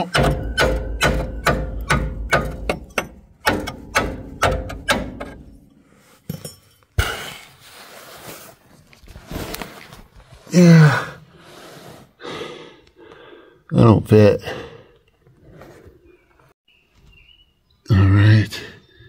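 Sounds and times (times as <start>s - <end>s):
hand tool knocking on steel: 0.0s - 5.6s
man groaning: 10.5s - 11.2s.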